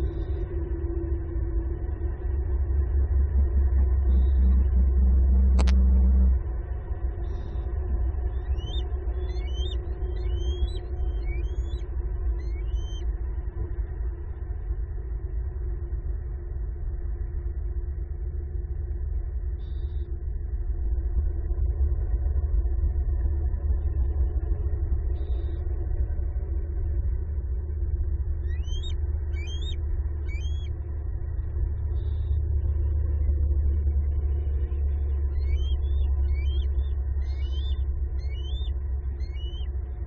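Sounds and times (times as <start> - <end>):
faint steady hum: 0.0 - 40.0
low background rumble: 0.0 - 40.0
high-pitched bird chirps: 8.4 - 11.8, 12.4 - 13.0, 28.5 - 30.7, 35.3 - 39.7.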